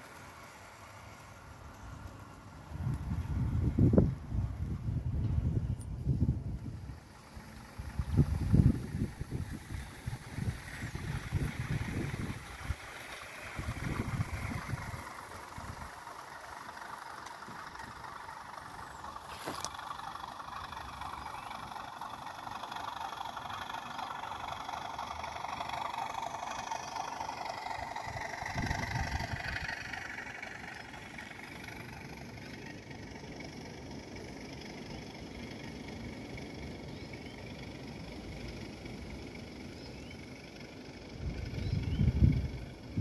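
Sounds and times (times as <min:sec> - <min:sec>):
model train running on track: 0:00.0 - 0:43.0
low rumble: 0:02.6 - 0:19.7, 0:24.6 - 0:32.5.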